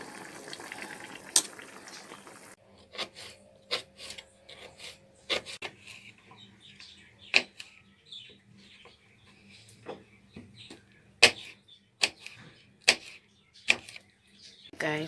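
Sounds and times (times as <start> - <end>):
potatoes boiling in a pot: 0.0 - 2.6.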